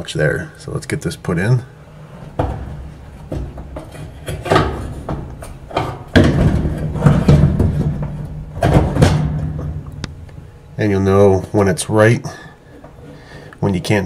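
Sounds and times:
metal scraping and clunking: 2.0s - 9.9s.

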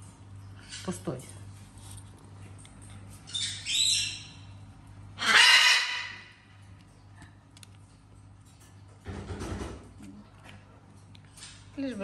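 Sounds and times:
parrot squawking: 3.3s - 4.5s, 5.2s - 6.5s.

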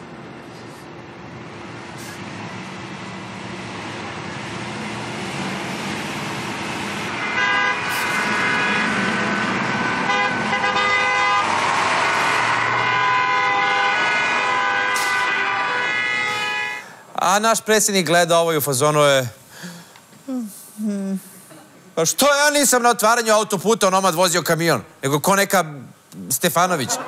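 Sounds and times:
truck engines and road noise: 0.0s - 17.1s
truck horns held: 7.2s - 11.6s, 12.2s - 17.0s.

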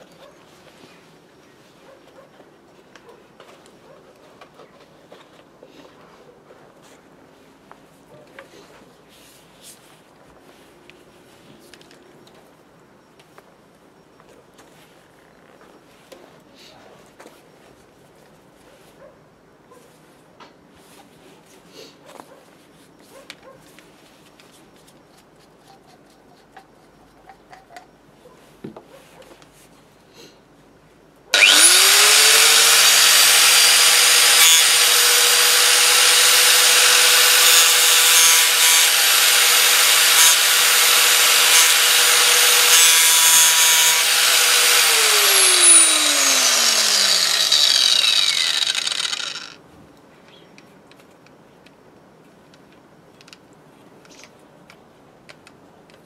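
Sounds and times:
angle grinder whining: 31.4s - 49.6s.

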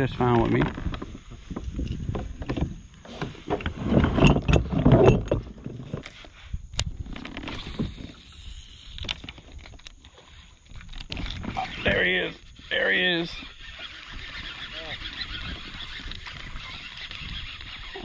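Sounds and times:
knocks and rattles on plastic kayak: 0.0s - 6.2s.

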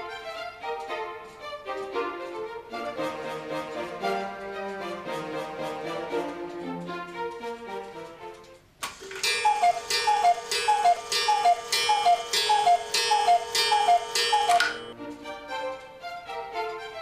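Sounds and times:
clock strike: 8.8s - 15.0s
cuckoo clock calls: 8.8s - 15.0s.

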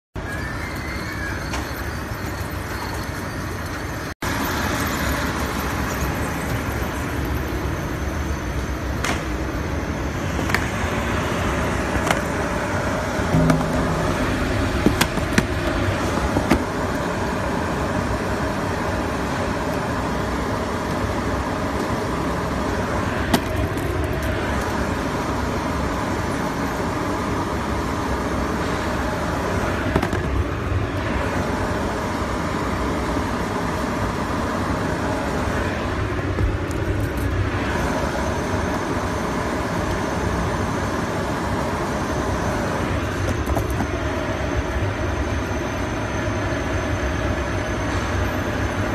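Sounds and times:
packing machine drone: 0.2s - 48.9s.

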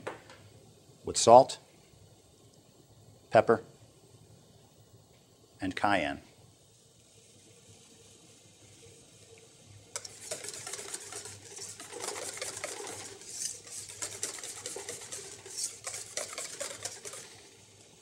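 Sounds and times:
whisk clicking against metal bowl: 10.0s - 17.6s.

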